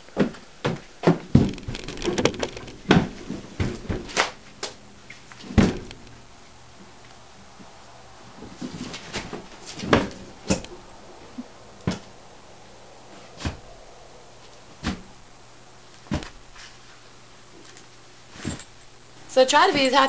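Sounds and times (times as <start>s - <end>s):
knocks and bumps: 0.2s - 4.8s, 5.4s - 6.3s, 16.0s - 16.6s.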